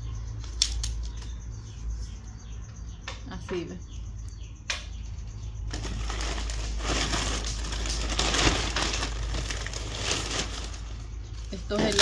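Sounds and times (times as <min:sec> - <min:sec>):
corn husks being stripped: 0:05.7 - 0:12.0
plastic bag crinkling: 0:05.7 - 0:12.0.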